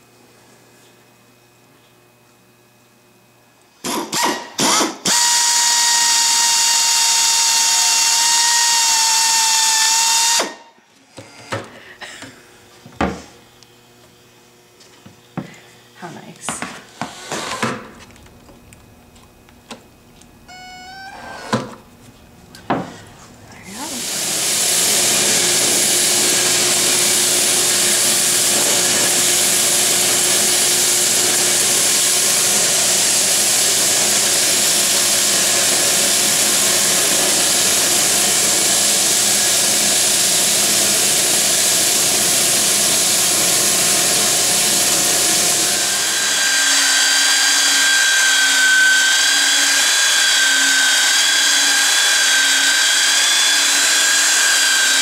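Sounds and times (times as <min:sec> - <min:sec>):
cordless drill spinning: 0:05.0 - 0:10.6, 0:23.8 - 0:55.0
belt sander whining: 0:17.0 - 0:55.0
handheld belt sander motor: 0:23.7 - 0:55.0.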